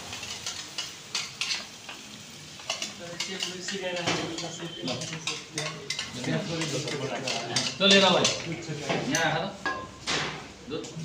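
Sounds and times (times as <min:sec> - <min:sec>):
frying sizzle: 0:00.0 - 0:11.0.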